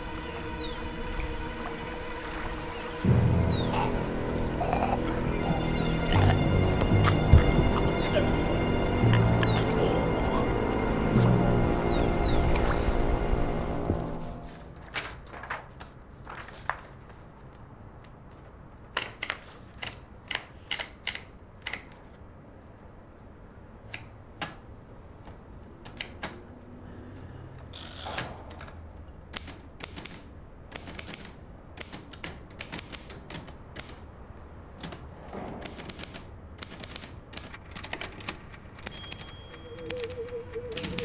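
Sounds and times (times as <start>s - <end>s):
typewriter clacks: 35.6s - 41.0s.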